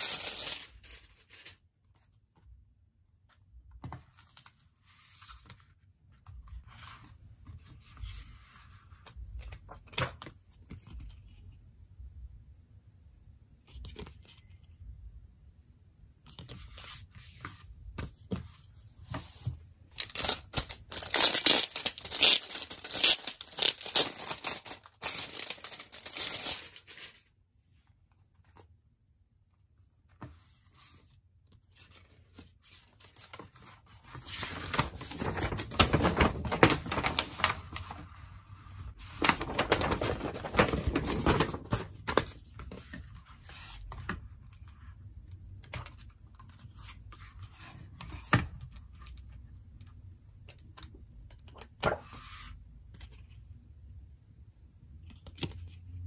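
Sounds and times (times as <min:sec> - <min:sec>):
plastic shrink wrap crinkling and tearing: 0:00.0 - 0:01.6, 0:19.9 - 0:27.3, 0:34.4 - 0:38.0, 0:39.1 - 0:42.0
pages turning: 0:00.0 - 0:02.2, 0:03.8 - 0:11.4, 0:16.3 - 0:27.3, 0:30.1 - 0:44.8
cardboard case and paper rustling: 0:18.3 - 0:27.2, 0:33.0 - 0:38.2, 0:39.0 - 0:43.1.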